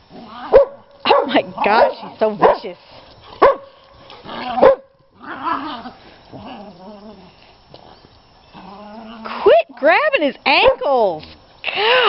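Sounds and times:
dogs growling: 0.0 - 0.6, 3.2 - 9.9
dog barking: 0.5 - 2.7, 3.4 - 3.8, 4.6 - 4.9.

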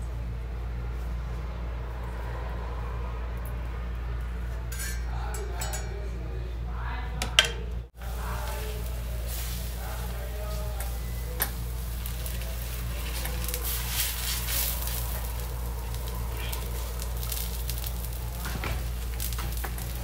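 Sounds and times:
steady low hum: 0.0 - 20.0
metal spoon clinking on metal: 4.7 - 6.2.

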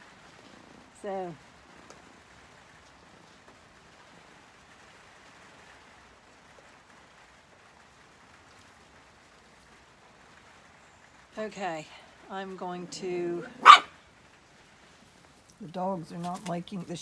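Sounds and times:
faint rain hiss: 0.0 - 17.0.

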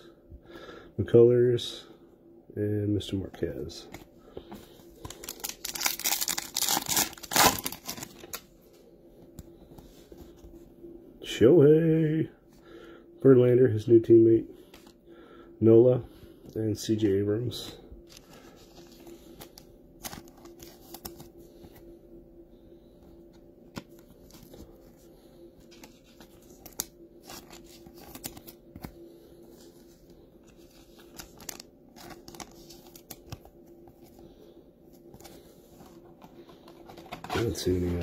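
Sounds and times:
faint steady hum: 0.0 - 38.0
cards clicking and rustling: 25.6 - 29.0, 30.5 - 33.5.

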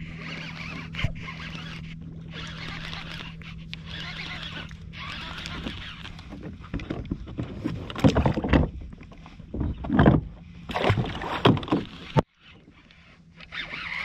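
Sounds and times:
water splashing: 10.7 - 12.3.

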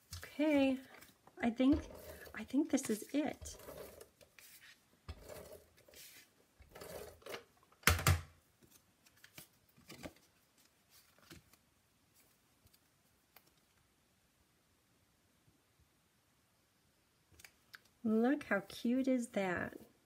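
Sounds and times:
paper rustling: 8.6 - 13.6.

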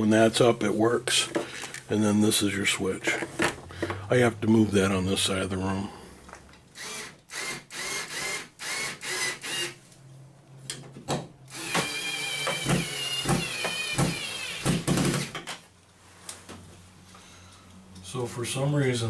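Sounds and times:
power drill whine: 6.8 - 9.8, 11.5 - 15.3.

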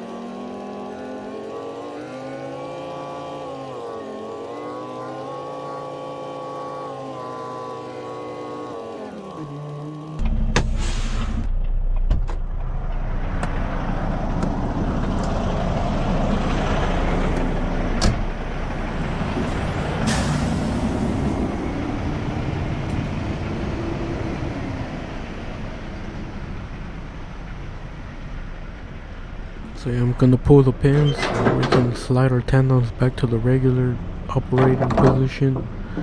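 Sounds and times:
diesel truck engine running: 0.0 - 36.0
air brake hiss: 10.6 - 11.5, 20.0 - 21.0.

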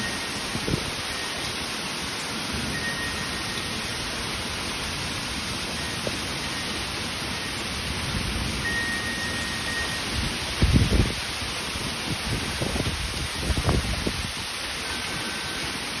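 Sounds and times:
faint high ringing tone: 0.0 - 1.6, 2.6 - 4.2, 5.7 - 7.8, 8.6 - 10.2, 14.8 - 15.9
heavy rain falling: 0.0 - 16.0.

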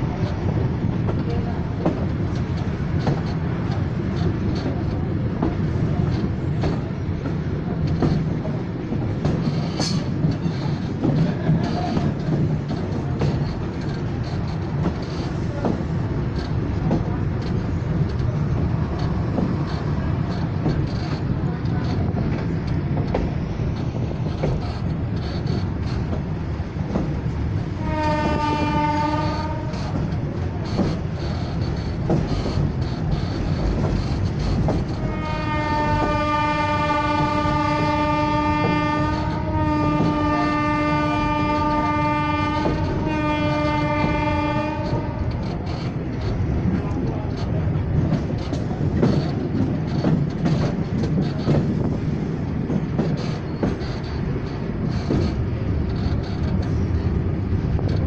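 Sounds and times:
train rumble and rail clatter: 0.0 - 58.0
locomotive horn blasts: 27.7 - 30.0, 34.9 - 45.5.

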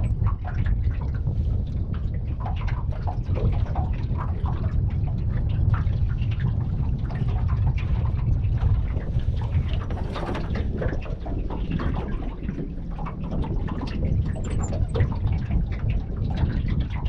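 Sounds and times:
waves lapping against boat hull: 0.0 - 17.0
wind rumble on microphone: 0.0 - 17.0.

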